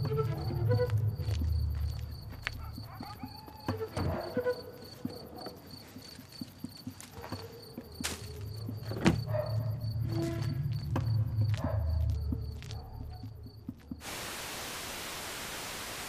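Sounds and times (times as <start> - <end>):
low rumble: 0.0 - 2.8, 9.6 - 13.5
crickets chirping: 0.0 - 15.8.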